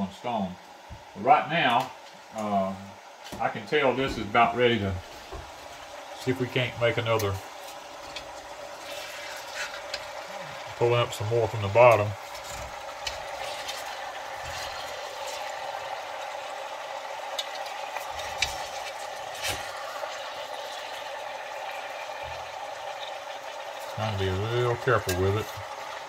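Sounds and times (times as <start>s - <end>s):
pork fat sizzling: 0.0s - 26.0s
metal spatula scraping pot: 7.6s - 10.2s, 12.2s - 15.6s.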